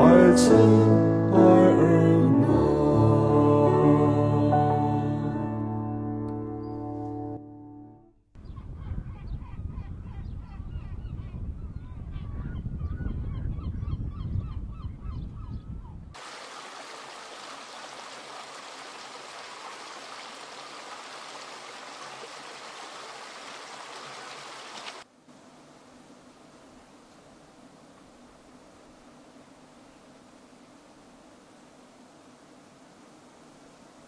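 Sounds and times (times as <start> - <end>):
stream rushing: 16.2 - 25.0
waterbirds calling: 16.2 - 25.0.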